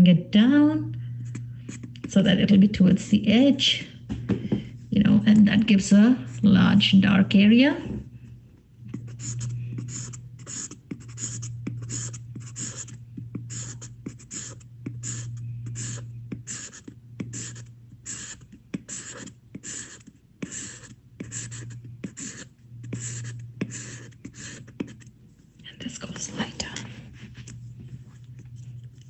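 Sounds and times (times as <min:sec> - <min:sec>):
low hum: 0:00.0 - 0:18.7, 0:20.3 - 0:29.0
pencil scratching on paper: 0:08.9 - 0:25.1.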